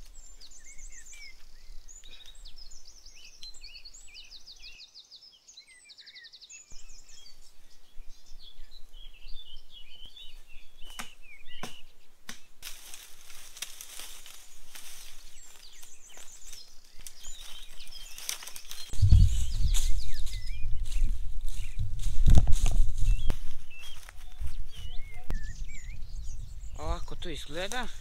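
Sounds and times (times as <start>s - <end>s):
birds chirping and trilling: 0.0s - 28.0s
footsteps rustling dry leaves: 12.6s - 25.3s.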